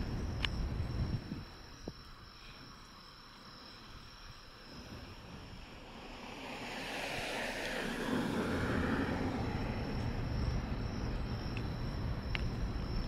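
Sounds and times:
cricket trill: 0.0s - 13.0s
road vehicle passing: 5.0s - 13.0s.

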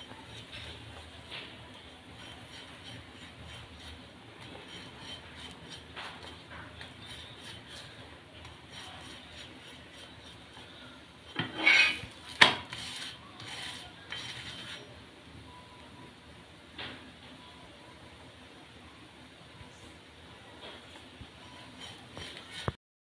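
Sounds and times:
spatula scraping on iron pan: 0.0s - 15.0s, 21.4s - 22.8s.

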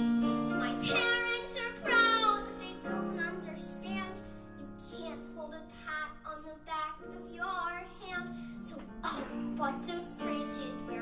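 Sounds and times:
piano accompaniment: 0.0s - 11.0s
girl singing into microphone: 0.6s - 11.0s.

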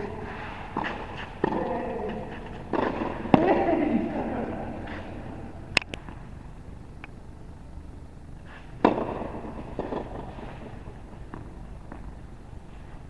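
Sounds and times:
tennis ball bouncing: 0.0s - 6.2s, 8.8s - 12.3s
tennis racket striking ball: 0.7s - 3.8s, 8.8s - 12.1s.

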